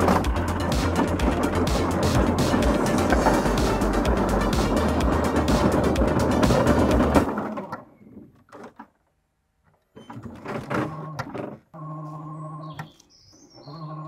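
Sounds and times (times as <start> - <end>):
background music: 0.0 - 7.4
electric motors whining: 0.0 - 7.4
tank tracks clicking and clattering: 0.0 - 9.1.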